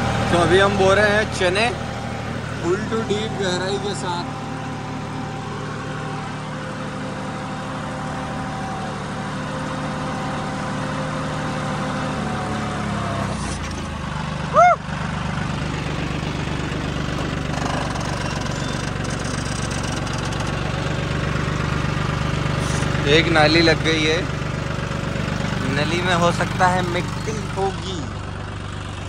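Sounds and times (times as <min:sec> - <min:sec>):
tractor diesel engine: 0:00.0 - 0:29.0
loud call rising and falling: 0:14.5 - 0:14.9.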